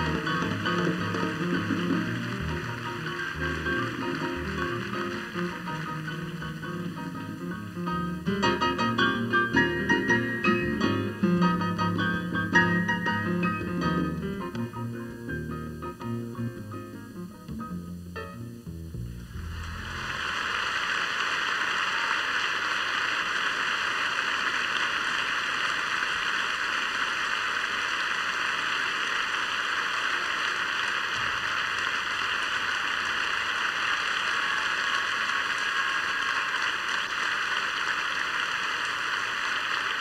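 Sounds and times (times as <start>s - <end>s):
audience applauding: 0.0s - 10.3s, 19.3s - 40.0s.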